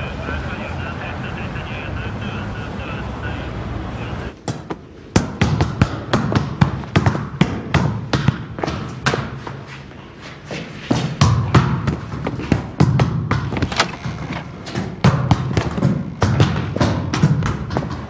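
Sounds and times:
steady background noise: 0:00.0 - 0:18.0
football thudding on tiled floor: 0:04.4 - 0:09.6, 0:10.6 - 0:18.0.

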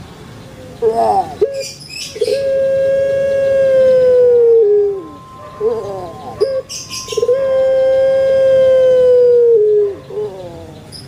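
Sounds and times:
dove cooing: 0:00.6 - 0:11.0.

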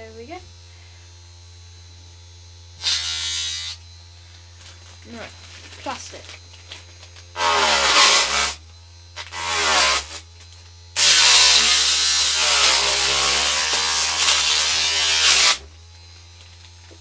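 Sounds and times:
small motor buzzing: 0:00.0 - 0:17.0
saw rasping through plastic: 0:02.8 - 0:03.8, 0:07.3 - 0:08.6, 0:09.2 - 0:10.2, 0:11.0 - 0:15.7.

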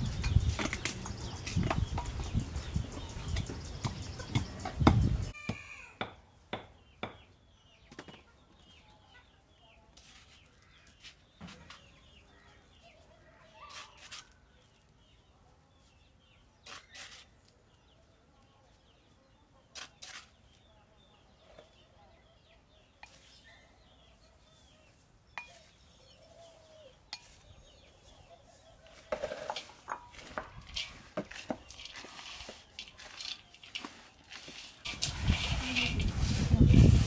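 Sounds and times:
chickens clucking: 0:00.0 - 0:05.3
small birds chirping: 0:00.0 - 0:37.0.

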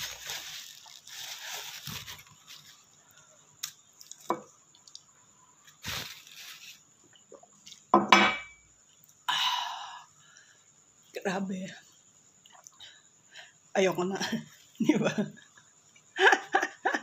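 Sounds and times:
person breathing hard: 0:09.3 - 0:10.7.

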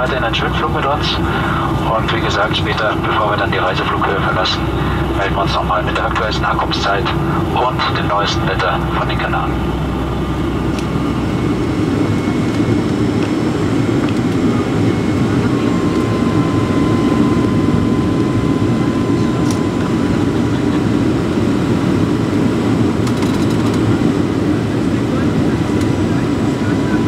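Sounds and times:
faint steady whine: 0:00.0 - 0:19.6
airliner cabin roar: 0:00.0 - 0:27.0.

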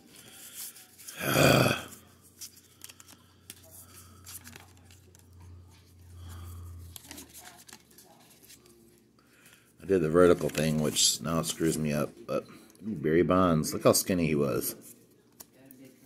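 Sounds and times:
cards sliding and flipping: 0:02.3 - 0:05.2.

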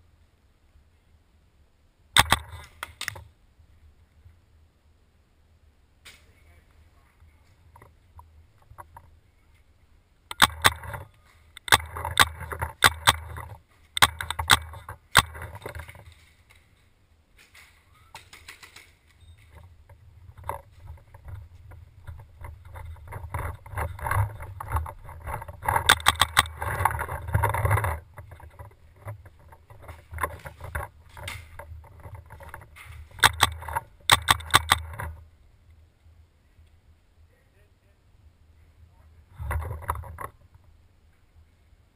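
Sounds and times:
steady low rumble: 0:19.2 - 0:41.9.

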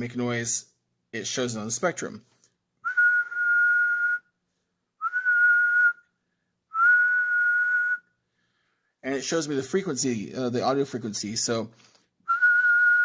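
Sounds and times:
person whistling steady note: 0:02.8 - 0:04.4, 0:05.0 - 0:08.2, 0:12.3 - 0:13.0.

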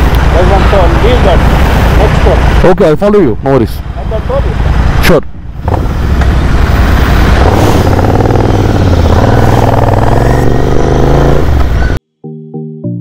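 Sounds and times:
motorcycle engine accelerating: 0:05.6 - 0:12.0
electronic music with plucked notes: 0:12.2 - 0:13.0.

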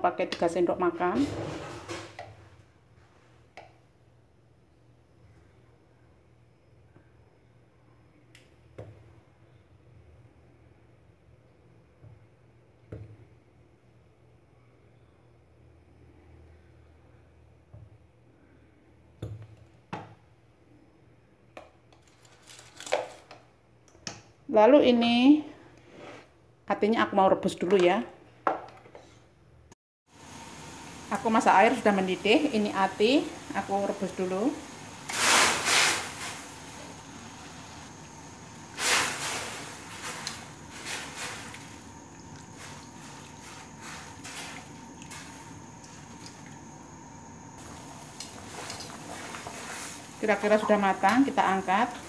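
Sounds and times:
water boiling in a wok: 0:30.1 - 0:52.0.

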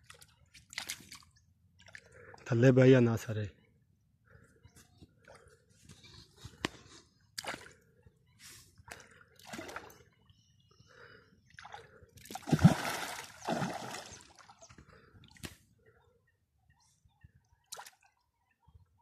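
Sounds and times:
water splashing in river: 0:11.6 - 0:14.7.

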